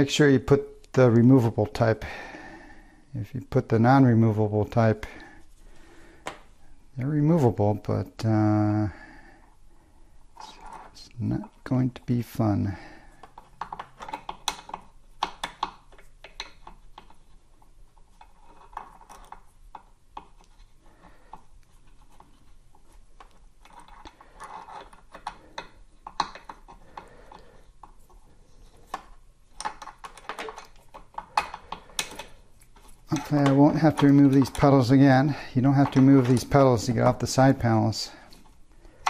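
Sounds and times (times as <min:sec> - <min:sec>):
hex key clicking and scraping: 0:23.2 - 0:34.6.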